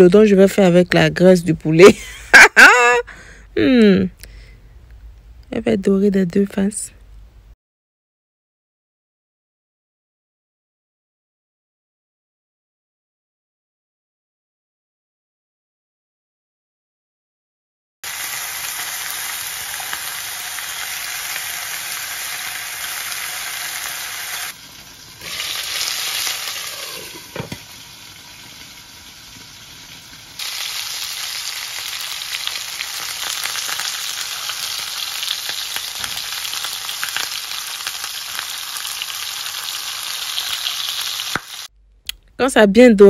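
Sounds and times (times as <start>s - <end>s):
chicken sizzling in a frying pan: 18.0s - 41.7s.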